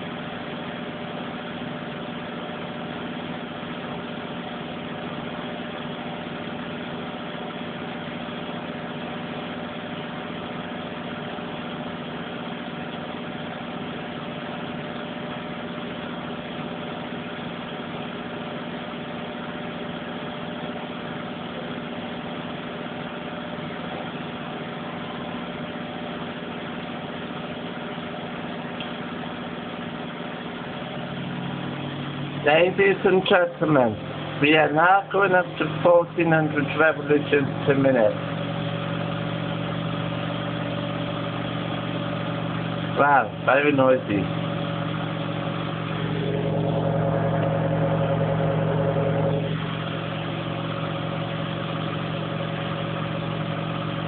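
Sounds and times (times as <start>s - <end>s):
washing machine spinning: 0.0s - 54.0s.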